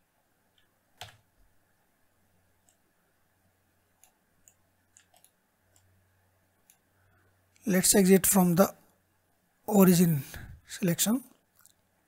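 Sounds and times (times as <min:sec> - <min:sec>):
keyboard and mouse clicks: 0:00.5 - 0:01.3, 0:02.6 - 0:02.8, 0:03.9 - 0:05.9.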